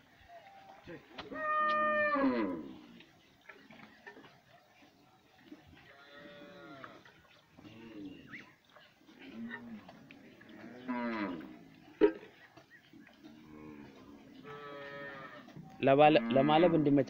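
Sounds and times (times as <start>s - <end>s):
cattle mooing: 1.3s - 2.9s, 5.8s - 7.0s, 7.6s - 8.4s, 9.2s - 11.7s, 13.2s - 17.0s.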